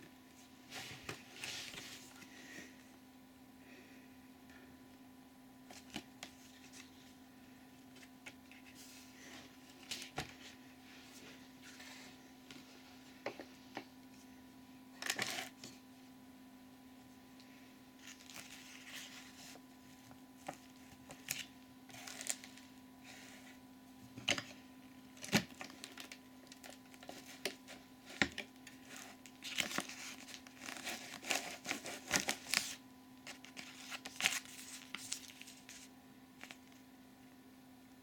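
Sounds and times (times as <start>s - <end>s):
paper rustling and crinkling: 0.4s - 2.5s, 5.7s - 7.2s, 7.8s - 12.8s, 18.0s - 23.5s, 24.2s - 36.8s.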